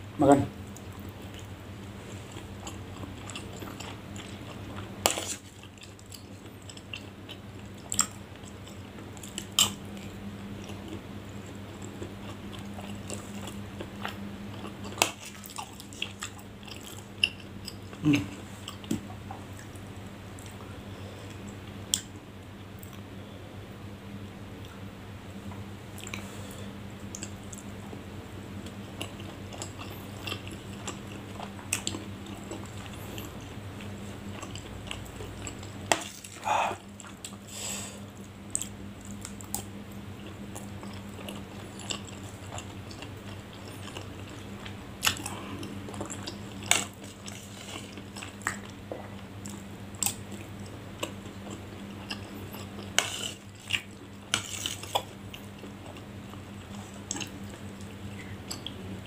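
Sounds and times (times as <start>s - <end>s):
close chewing: 2.1s - 19.8s, 29.0s - 33.5s, 38.2s - 58.8s.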